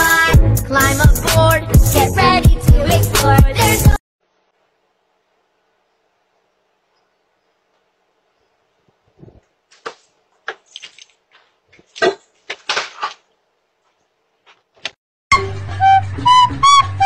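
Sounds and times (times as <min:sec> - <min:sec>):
faint steady hum: 0:04.2 - 0:10.4
footsteps: 0:08.9 - 0:15.0
handling knocks and rustles: 0:08.9 - 0:15.0
flute music: 0:15.3 - 0:17.0.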